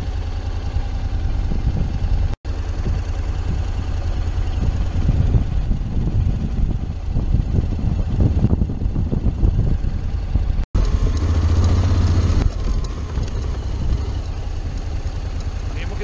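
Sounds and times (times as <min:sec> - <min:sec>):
scooter engine rumbling at low revs: 0:00.0 - 0:16.0.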